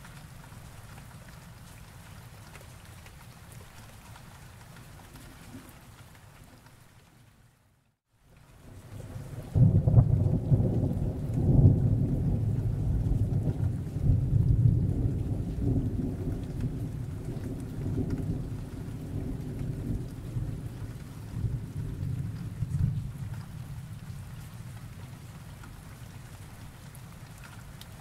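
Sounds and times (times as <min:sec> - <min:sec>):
rolling thunder: 0:09.4 - 0:24.0.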